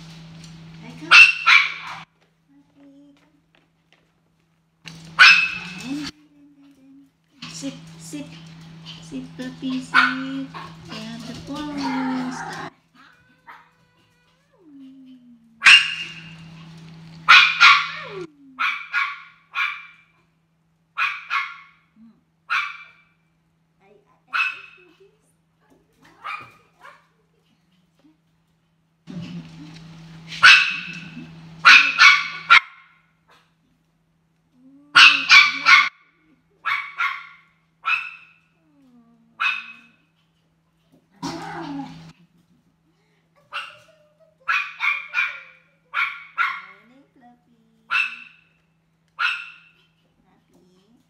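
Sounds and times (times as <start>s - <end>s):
dog barking: 1.1s - 2.0s, 5.2s - 5.8s, 9.9s - 10.8s, 15.6s - 16.4s, 17.3s - 20.1s, 21.0s - 21.8s, 22.5s - 23.0s, 24.3s - 24.8s, 26.2s - 27.1s, 30.4s - 33.4s, 35.0s - 35.9s, 36.6s - 38.4s, 39.4s - 40.0s, 44.5s - 46.8s, 47.9s - 48.5s, 49.2s - 49.8s.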